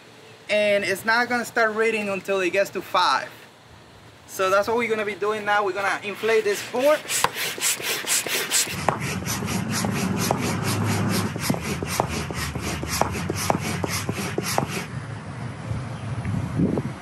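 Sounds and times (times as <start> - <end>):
hand pump air whooshing: 6.0 - 14.9.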